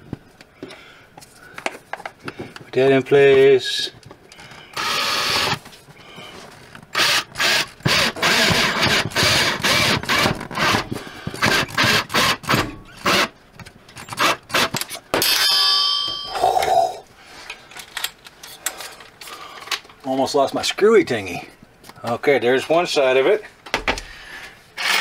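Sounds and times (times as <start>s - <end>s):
cordless drill driving a screw: 4.8s - 5.6s, 7.0s - 10.8s, 11.4s - 13.3s, 24.8s - 25.0s
metallic ringing clink: 15.2s - 17.0s.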